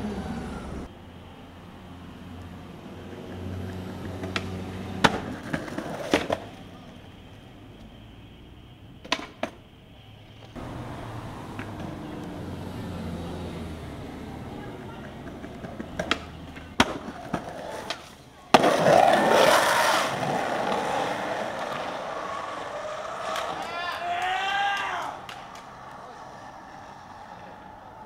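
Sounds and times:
street background hum: 0.0s - 28.0s
skateboard clattering knocks: 3.3s - 6.6s, 10.6s - 12.5s, 13.8s - 27.2s
skateboard pop: 4.0s - 6.6s, 9.0s - 9.6s, 14.8s - 25.8s
skateboard landing smack: 4.2s - 6.6s, 9.0s - 9.6s, 15.0s - 20.9s.

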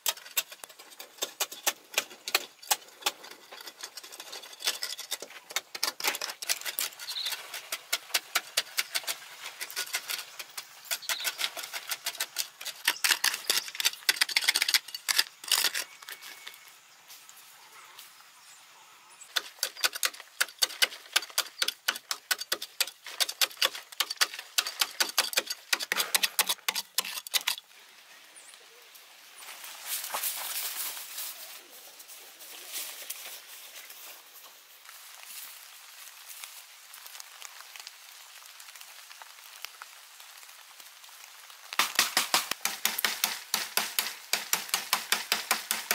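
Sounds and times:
hoes scraping into clay: 0.0s - 16.6s, 19.3s - 27.6s
soft rustle: 28.5s - 39.9s
soil trickling down: 32.4s - 43.0s.

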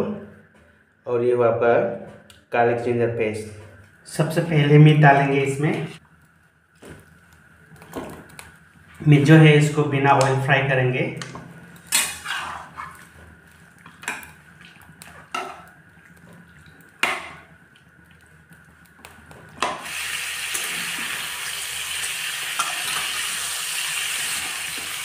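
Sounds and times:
meat sizzling: 11.7s - 25.0s
metal spatula scraping pan: 11.9s - 13.1s.

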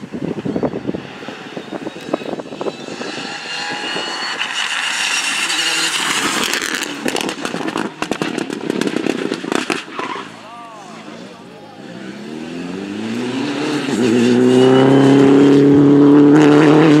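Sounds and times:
rally car engine accelerating: 0.0s - 17.0s
exhaust pops and cracks: 6.4s - 10.0s.

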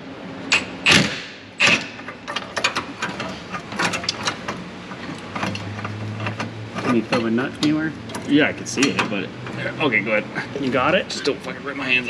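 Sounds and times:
impact wrench striking metal: 0.5s - 4.5s.

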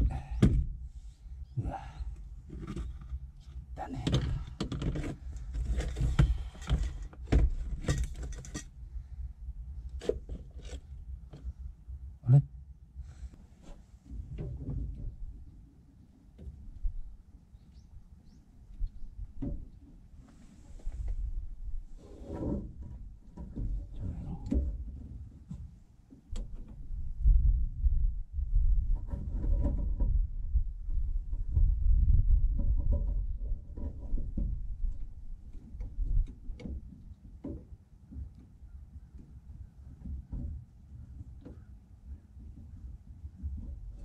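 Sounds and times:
low rumbling thumps: 0.0s - 8.2s, 26.4s - 37.0s
metallic clicks and clunks: 4.0s - 8.7s
tools clattering and scraping: 7.7s - 8.7s.

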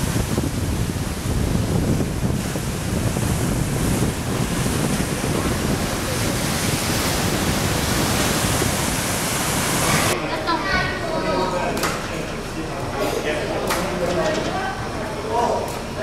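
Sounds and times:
wind buffeting microphone: 0.0s - 10.2s
sea surf rushing over rocks: 0.0s - 10.3s.

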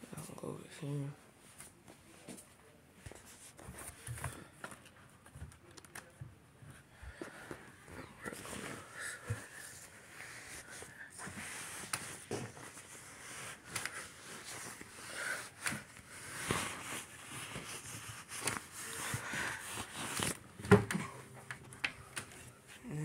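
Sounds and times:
bedding rustling: 6.6s - 23.0s.

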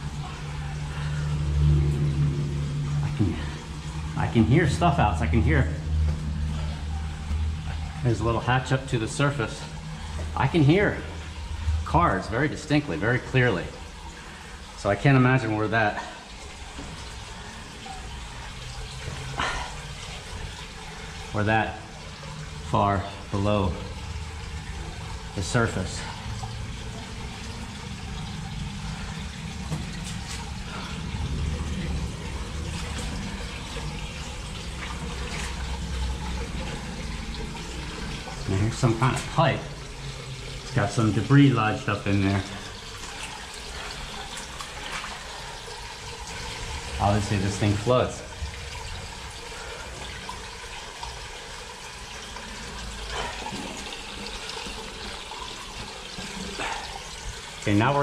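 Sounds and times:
road traffic rumble: 0.0s - 44.6s
running water echoing in tunnel: 0.0s - 58.0s.

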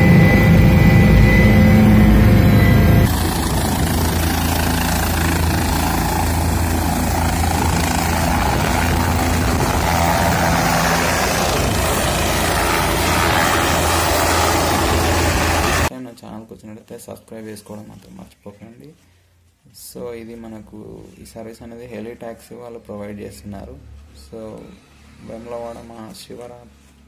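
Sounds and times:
helicopter rotor and engine: 0.0s - 15.9s.

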